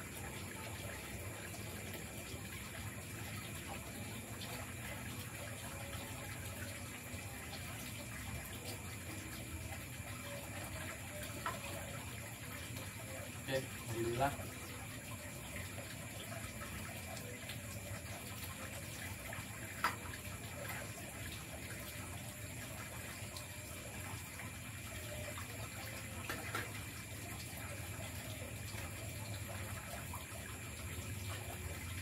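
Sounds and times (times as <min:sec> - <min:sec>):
steady water-like hiss: 0:00.0 - 0:32.0.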